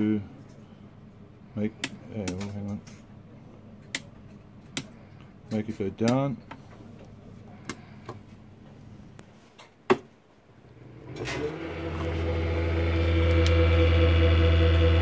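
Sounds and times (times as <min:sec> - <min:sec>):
lift motor humming and whining: 0:10.6 - 0:15.0.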